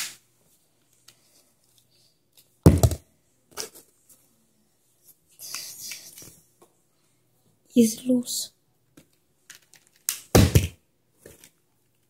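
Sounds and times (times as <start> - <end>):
plastic bottle landing thunk: 2.7 - 3.0, 10.3 - 10.8.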